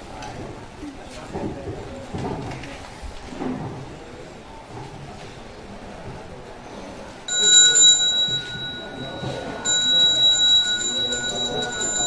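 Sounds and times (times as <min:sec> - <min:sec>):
hand bell ringing: 0:07.3 - 0:12.0.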